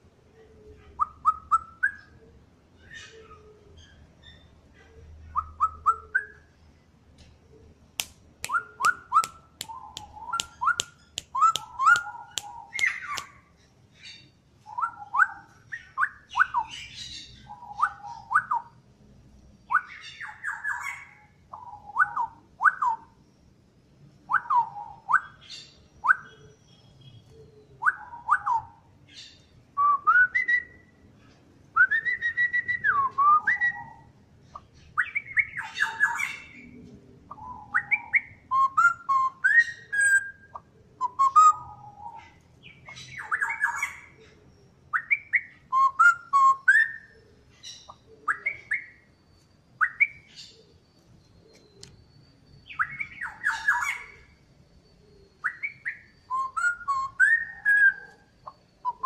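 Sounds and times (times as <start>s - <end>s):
bird singing whistled phrases: 1.0s - 2.2s, 5.3s - 6.5s, 8.4s - 13.4s, 14.7s - 18.8s, 19.7s - 23.2s, 24.3s - 28.8s, 29.8s - 31.0s, 31.8s - 34.1s, 35.0s - 36.6s, 37.3s - 44.2s, 44.9s - 47.2s, 47.8s - 50.7s, 51.4s - 54.4s, 55.0s - 59.0s.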